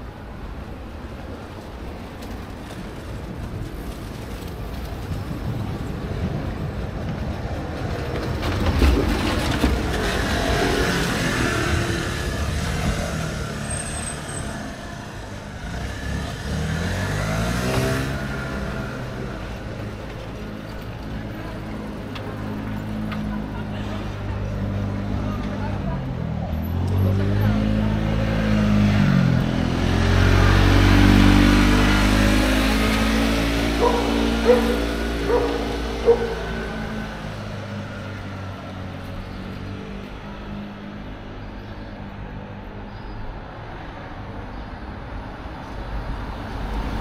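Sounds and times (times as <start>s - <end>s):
motor vehicle passing: 7.6s - 41.2s.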